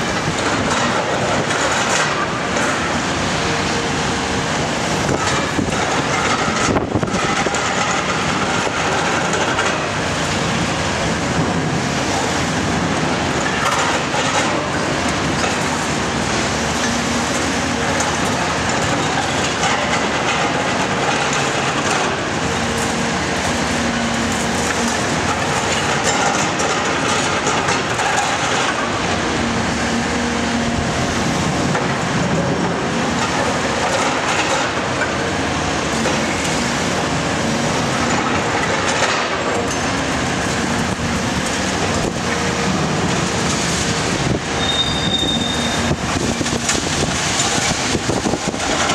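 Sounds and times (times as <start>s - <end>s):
excavator diesel engine and hydraulics: 0.0s - 48.9s
high squeal: 44.6s - 45.9s.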